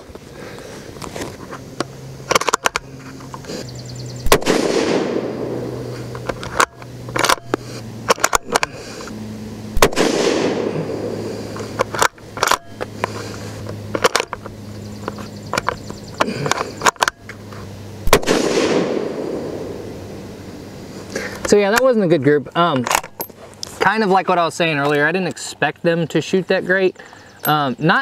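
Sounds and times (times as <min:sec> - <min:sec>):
rifle shots with echo: 0:04.2 - 0:05.9, 0:09.8 - 0:11.2, 0:18.0 - 0:19.8.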